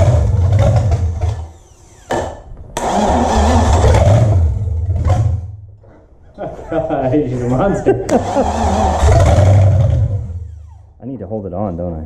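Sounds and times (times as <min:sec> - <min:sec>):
car engine starting: 0:00.0 - 0:05.7, 0:08.1 - 0:11.0.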